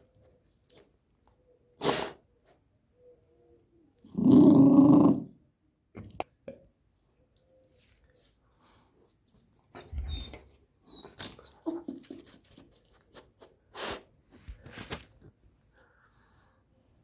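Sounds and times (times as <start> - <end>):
puppy whining: 9.7 - 12.6.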